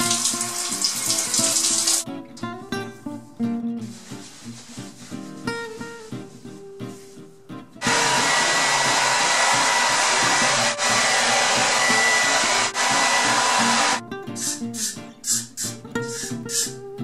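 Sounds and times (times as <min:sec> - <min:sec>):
quiet music: 0:00.0 - 0:07.8
hair dryer blowing: 0:07.8 - 0:14.0.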